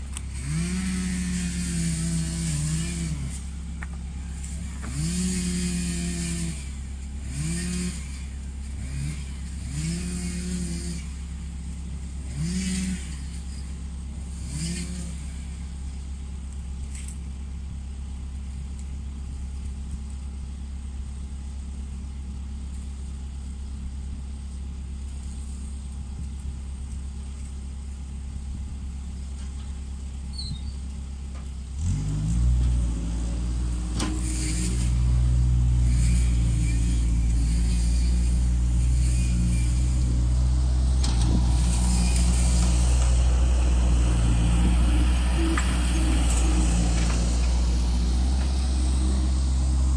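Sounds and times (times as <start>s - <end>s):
diesel engine revving: 0.0s - 15.9s, 31.6s - 49.9s.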